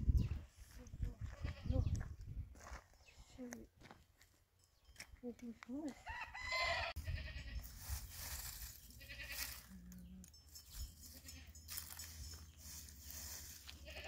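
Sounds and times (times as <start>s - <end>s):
livestock bleating: 1.3s - 1.9s, 6.6s - 7.7s, 8.8s - 10.0s, 11.2s - 11.6s, 13.7s - 14.0s.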